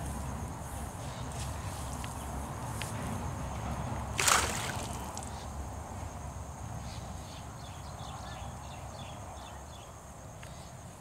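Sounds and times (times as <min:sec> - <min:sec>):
net hauled through water: 0:04.1 - 0:05.3
loud water splash: 0:04.2 - 0:05.2.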